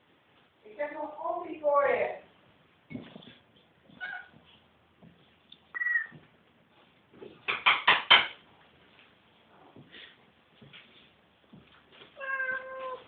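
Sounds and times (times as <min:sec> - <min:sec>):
knocks: 0:07.4 - 0:08.4
cats mewing: 0:12.2 - 0:13.0.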